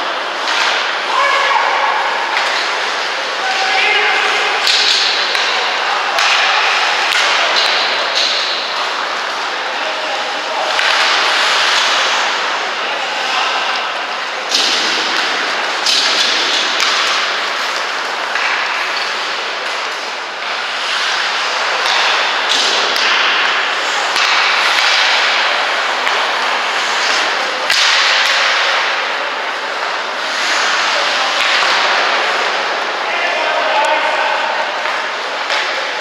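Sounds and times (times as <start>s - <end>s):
hockey sticks and puck clacking: 0.0s - 36.0s
skate blades scraping ice: 6.6s - 12.8s, 14.2s - 32.9s.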